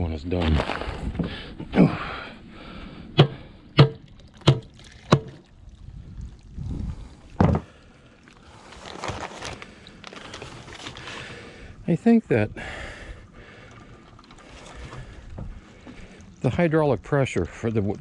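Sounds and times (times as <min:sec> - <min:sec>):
sharp knocks on form: 0:03.2 - 0:05.4
paper bag rustling: 0:08.6 - 0:11.4.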